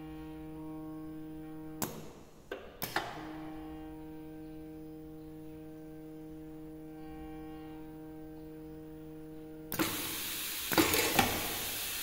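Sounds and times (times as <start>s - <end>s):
conveyor motor hum: 0.0s - 2.2s, 2.8s - 12.0s
pneumatic cylinder clacks: 9.7s - 12.0s.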